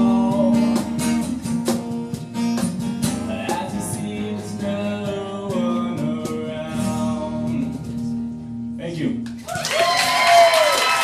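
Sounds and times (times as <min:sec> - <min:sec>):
man singing: 0:00.0 - 0:01.4, 0:03.0 - 0:08.2
acoustic guitars strumming: 0:00.0 - 0:09.4.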